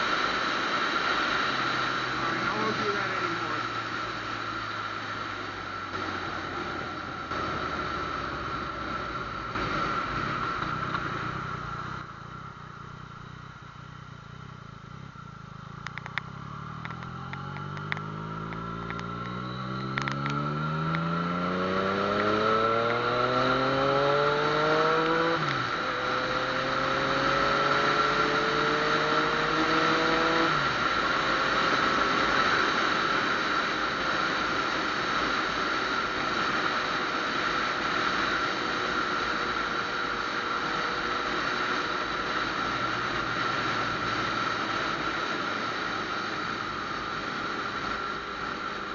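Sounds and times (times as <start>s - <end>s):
motorcycle engine accelerating: 0.0s - 48.9s.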